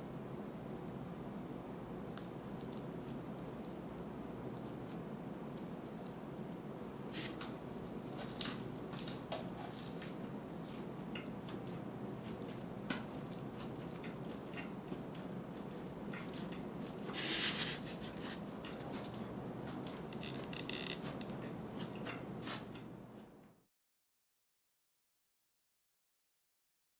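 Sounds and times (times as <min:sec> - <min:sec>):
low room hum: 0:00.0 - 0:23.7.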